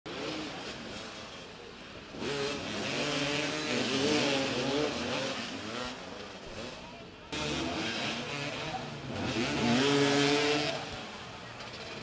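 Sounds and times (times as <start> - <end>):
motorcycle engines revving: 0.1 - 12.0.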